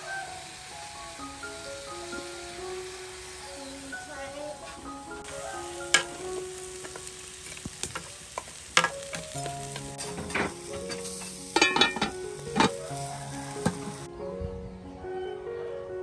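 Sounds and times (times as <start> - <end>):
pork sizzling on a grill: 0.0 - 14.1
fat popping and crackling: 5.2 - 13.0.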